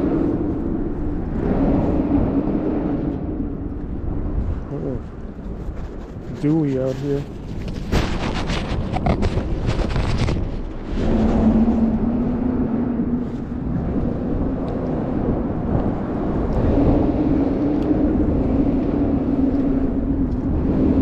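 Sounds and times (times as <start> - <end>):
engine drone: 0.0 - 6.2, 7.9 - 21.0
wind noise: 0.0 - 21.0
rubbing on microphone: 5.0 - 10.8.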